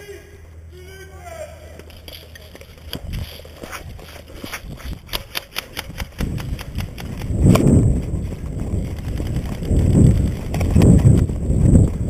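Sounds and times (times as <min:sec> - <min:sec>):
running footsteps on grass: 0:01.7 - 0:12.0
low rumble: 0:06.2 - 0:12.0.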